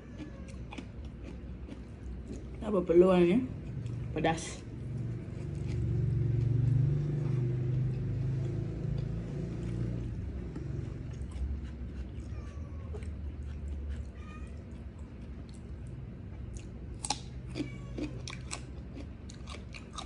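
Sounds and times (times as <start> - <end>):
cat yowling: 0.0 - 0.8, 12.2 - 13.2, 14.1 - 14.8, 17.5 - 18.4
cat meowing: 0.0 - 0.9, 12.2 - 13.2, 14.0 - 14.8, 17.5 - 18.4.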